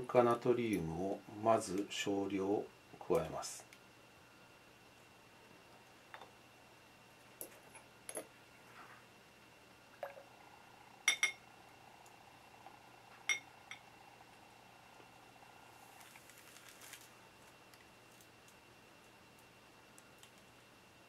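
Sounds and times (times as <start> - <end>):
glass test tube clinking: 11.1 - 11.4.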